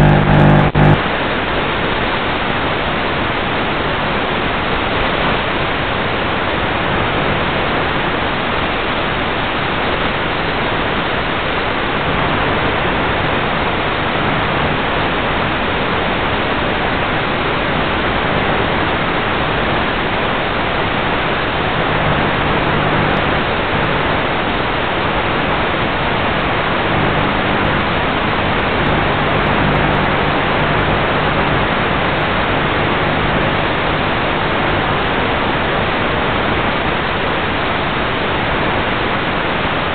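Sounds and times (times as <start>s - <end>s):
faint low hum: 0.0s - 1.0s
static hiss: 0.0s - 1.0s, 18.0s - 39.1s.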